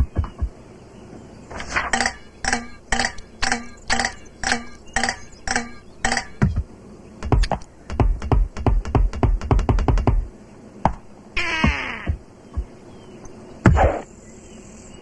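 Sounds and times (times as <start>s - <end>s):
low thumps and clicks: 0.0s - 0.6s, 1.9s - 12.8s
percussive ticks: 2.0s - 6.6s.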